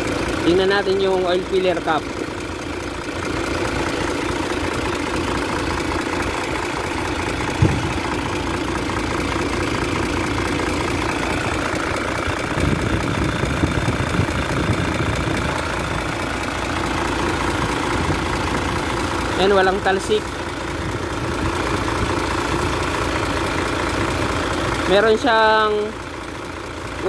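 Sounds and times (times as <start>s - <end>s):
diesel engine idling: 0.0s - 27.0s
low bumps: 6.2s - 8.8s
sharp thump: 7.6s - 8.0s.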